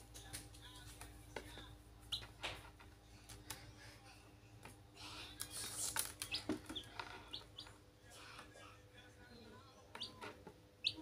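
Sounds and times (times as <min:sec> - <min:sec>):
chicks pecking and scratching on plastic: 0:00.0 - 0:03.8, 0:04.6 - 0:11.0
chicks peeping: 0:02.1 - 0:02.4, 0:05.5 - 0:07.8, 0:09.9 - 0:11.0.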